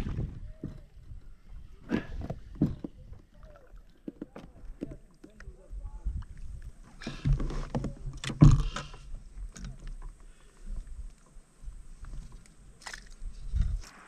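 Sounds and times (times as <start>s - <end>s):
fish handling knocks and clicks: 0.0s - 3.3s, 4.0s - 5.6s, 7.0s - 10.2s.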